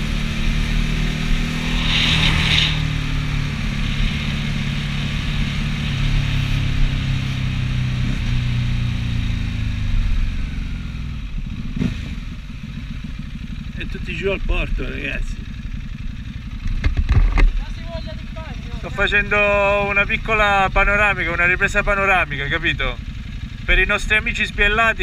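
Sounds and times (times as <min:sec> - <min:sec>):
motorcycle engine cruising: 0:00.0 - 0:25.0
wind rushing over microphone: 0:00.5 - 0:07.3.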